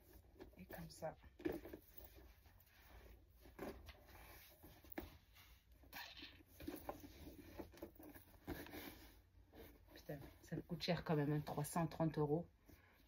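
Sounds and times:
leather bag rustling: 0:06.5 - 0:10.5.

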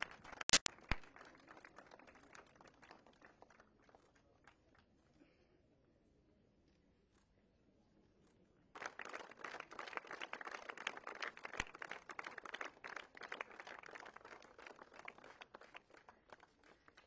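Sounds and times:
crowd applauding: 0:00.0 - 0:04.8, 0:08.8 - 0:17.0.

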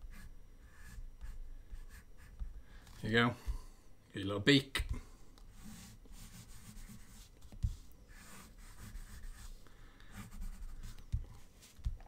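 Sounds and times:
pencil scratching on paper: 0:00.1 - 0:02.5, 0:05.5 - 0:12.0.

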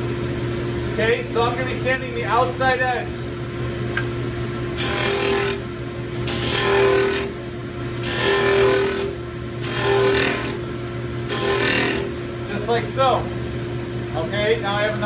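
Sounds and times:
sander and dust collector humming: 0:04.7 - 0:13.4
wood grinding on sanding disc: 0:08.0 - 0:10.6, 0:11.3 - 0:12.6.

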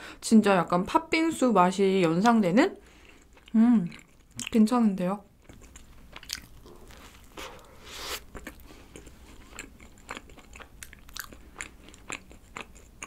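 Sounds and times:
chewing with mouth clicks: 0:03.0 - 0:04.6, 0:05.4 - 0:13.0.

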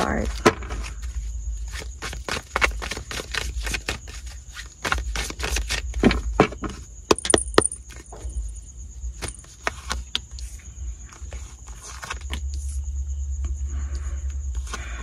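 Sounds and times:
cards being shuffled: 0:00.7 - 0:05.9, 0:09.2 - 0:10.5, 0:11.1 - 0:12.8.

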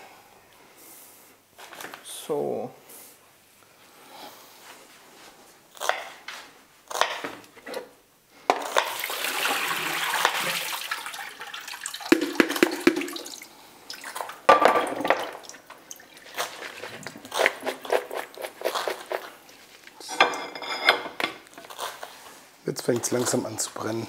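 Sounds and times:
tap running water: 0:08.5 - 0:18.2.

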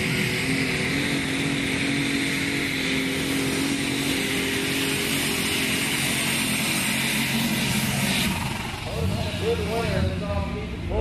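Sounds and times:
diesel engine running: 0:00.0 - 0:11.0.

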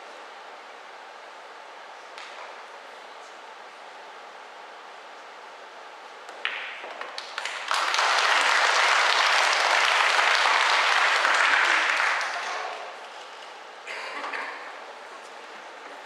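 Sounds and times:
billiard balls knocking: 0:06.3 - 0:07.2
pool cue striking ball: 0:06.3 - 0:07.4
audience applause: 0:07.2 - 0:13.0.

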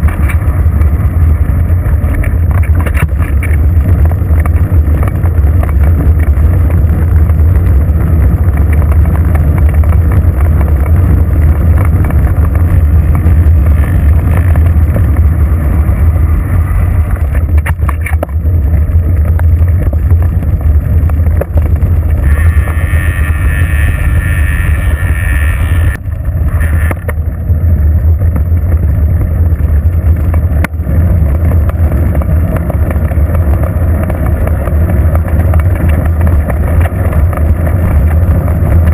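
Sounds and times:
wind buffeting microphone: 0:00.0 - 0:38.9
whirring hiss: 0:22.2 - 0:26.0.

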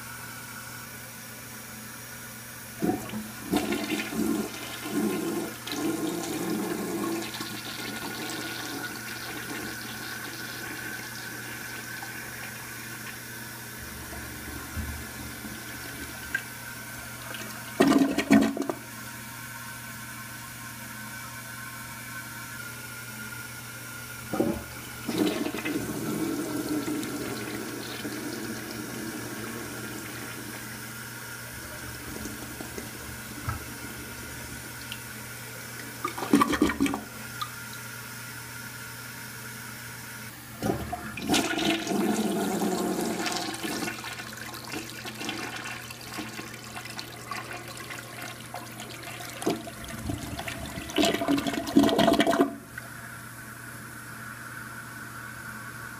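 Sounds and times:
toilet flushing: 0:01.9 - 0:38.5, 0:39.7 - 0:55.9
tank refilling water running: 0:02.7 - 0:21.9, 0:22.5 - 0:38.3, 0:40.2 - 0:53.2.

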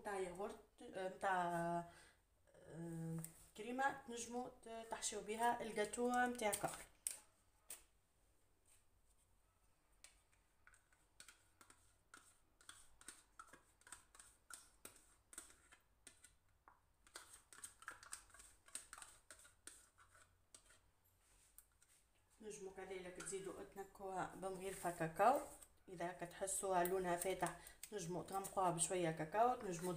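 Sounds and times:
small clicks and scrapes in glass bowl: 0:10.7 - 0:22.0, 0:22.9 - 0:29.9.

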